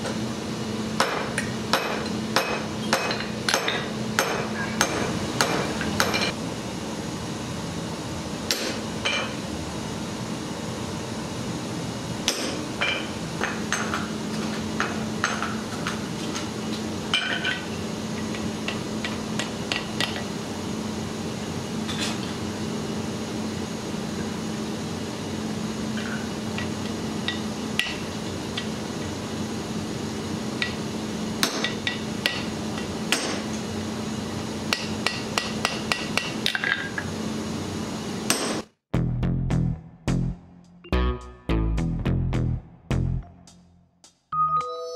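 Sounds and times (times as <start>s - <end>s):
hammer striking metal on anvil: 1.0s - 6.3s, 8.5s - 9.4s, 12.2s - 14.1s, 31.4s - 32.5s, 33.1s - 33.5s, 34.7s - 36.7s
steady low hum: 39.0s - 43.9s.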